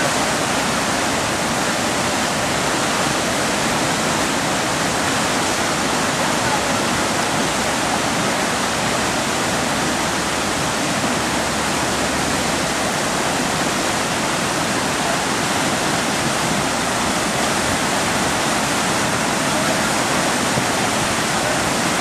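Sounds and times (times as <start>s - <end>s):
whitewater rushing: 0.0s - 22.0s.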